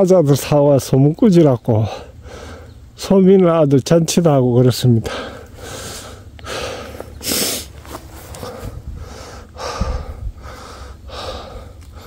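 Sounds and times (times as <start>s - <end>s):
man breathing hard: 1.9s - 2.8s, 5.0s - 12.0s.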